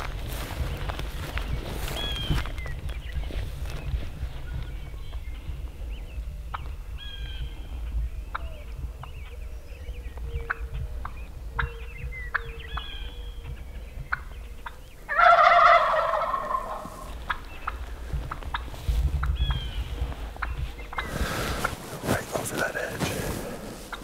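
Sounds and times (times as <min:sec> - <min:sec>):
footsteps through dry grass: 0:00.0 - 0:08.0, 0:15.1 - 0:24.0
faint songbird chirps: 0:00.6 - 0:21.4
turkey gobbling: 0:14.1 - 0:18.7.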